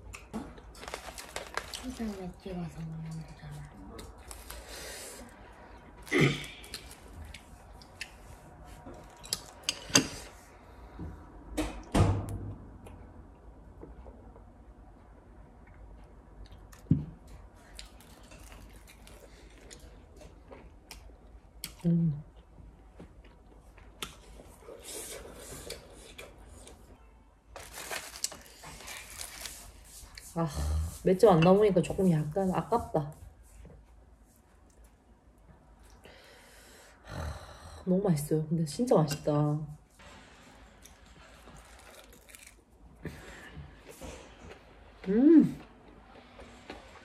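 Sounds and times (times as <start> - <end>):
dried seaweed crackling: 0.6 - 2.9, 27.5 - 30.2
chewing: 16.4 - 21.8, 41.4 - 42.6.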